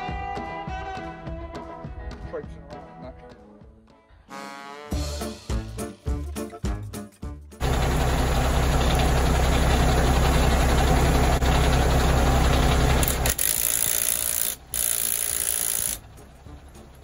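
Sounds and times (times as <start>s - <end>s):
impact wrench hammering: 13.0s - 16.0s.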